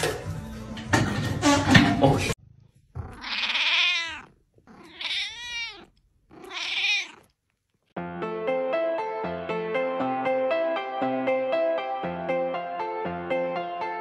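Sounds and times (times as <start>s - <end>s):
cat meowing: 3.0s - 7.4s.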